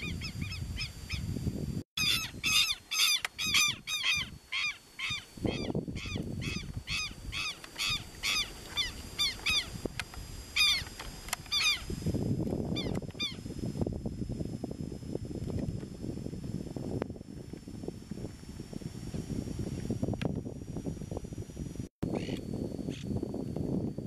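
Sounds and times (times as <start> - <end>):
lapwings calling: 2.0 - 9.9, 10.5 - 11.9, 12.7 - 13.4, 22.1 - 23.0.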